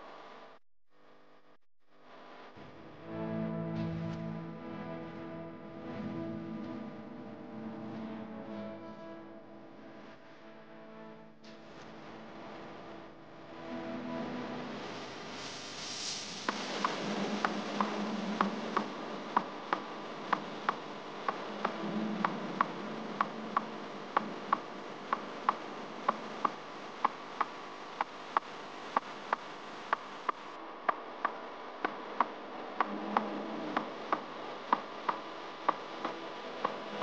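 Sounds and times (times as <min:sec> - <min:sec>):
soft low tone: 0:02.6 - 0:15.3.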